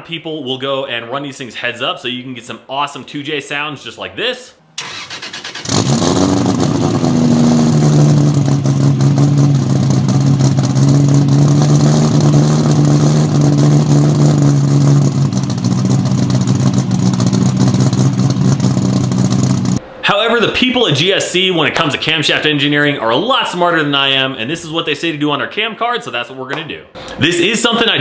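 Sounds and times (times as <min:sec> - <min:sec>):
car engine running loud: 0:05.6 - 0:19.8.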